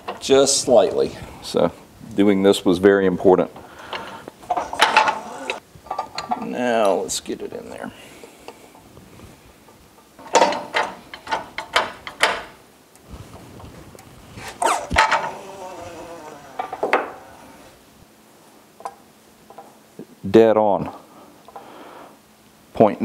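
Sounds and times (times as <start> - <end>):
metal parts clicking: 4.0 - 6.5.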